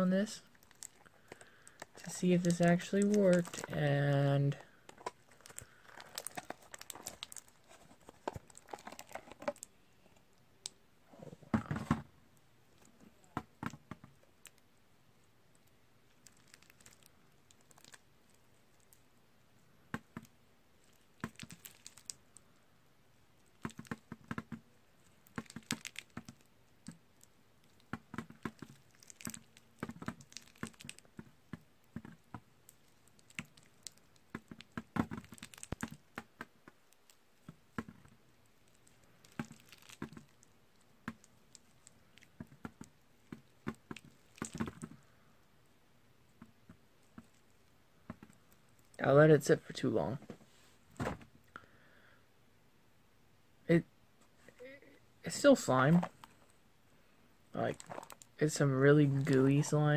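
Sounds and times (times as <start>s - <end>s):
slime squelch: 0.2s - 11.4s, 15.5s - 19.0s, 20.8s - 22.5s, 25.0s - 45.4s, 57.6s - 59.9s
sticky slime crackling and clicking: 16.2s - 18.0s, 21.2s - 22.2s, 25.2s - 27.0s, 27.6s - 44.9s.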